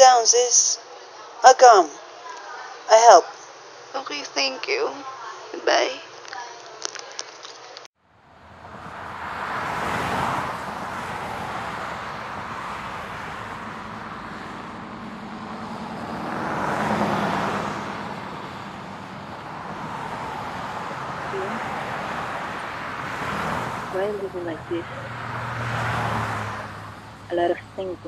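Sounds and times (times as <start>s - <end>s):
vehicle engine hum: 7.9s - 28.0s.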